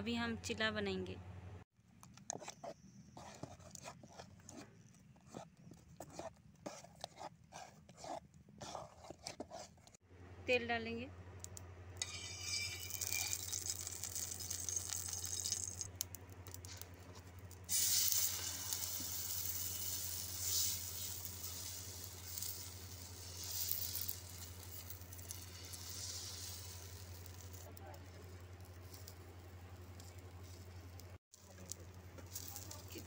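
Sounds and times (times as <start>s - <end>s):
batter sizzling on hot griddle: 12.0s - 33.0s
oil hissing on griddle: 17.7s - 27.6s.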